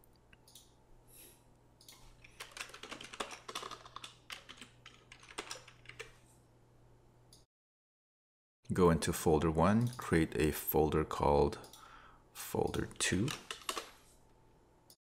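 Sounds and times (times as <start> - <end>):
computer keyboard typing: 1.8 - 6.2, 12.7 - 14.0.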